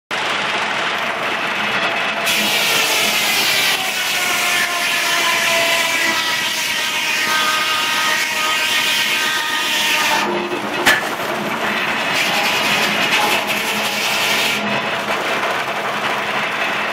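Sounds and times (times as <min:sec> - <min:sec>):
circular saw blade cutting log: 0:02.2 - 0:15.1.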